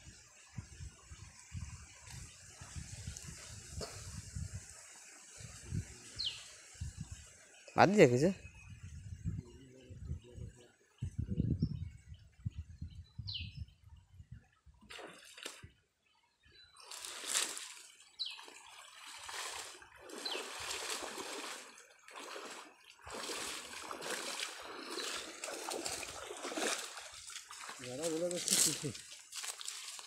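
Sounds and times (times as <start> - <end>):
pond water splashing: 14.8 - 16.0, 16.7 - 30.0
water running and dripping: 16.8 - 30.0.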